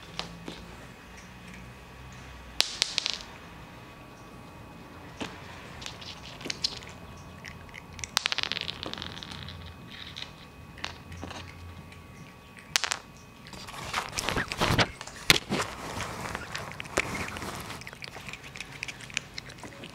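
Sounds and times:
cats crunching dry treats: 4.4 - 19.9
cat rubbing against camera: 13.5 - 18.6.

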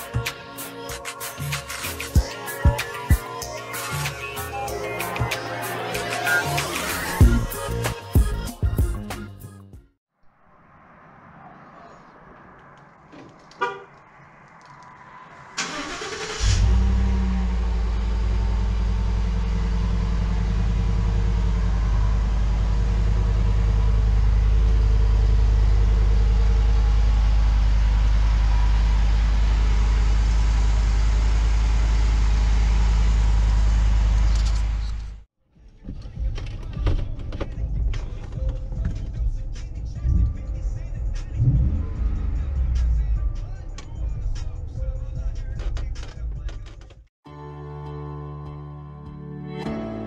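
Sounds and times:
car horn chirp: 13.5 - 14.0
engine starter cranking: 15.6 - 17.3
engine idling with deep exhaust rumble: 16.6 - 34.8.

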